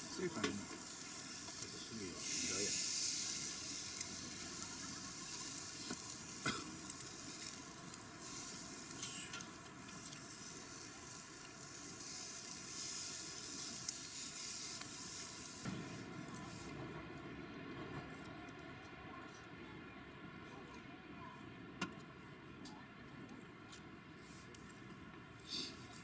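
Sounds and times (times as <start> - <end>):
steaks sizzling on a grill: 0.0 - 16.7.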